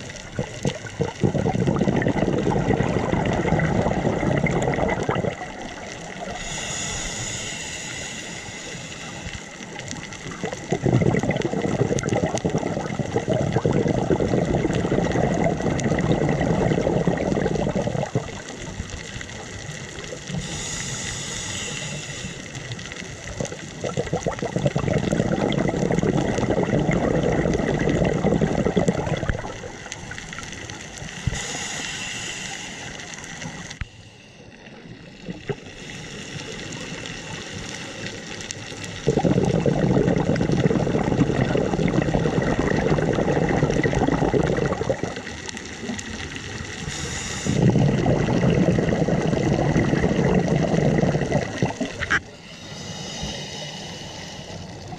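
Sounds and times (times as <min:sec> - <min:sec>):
exhaled air bubbling underwater: 0:00.0 - 0:54.9
regulator hissing inhales: 0:06.3 - 0:09.6, 0:20.3 - 0:22.7, 0:31.1 - 0:34.8, 0:35.6 - 0:38.3, 0:46.8 - 0:47.8, 0:52.3 - 0:54.9.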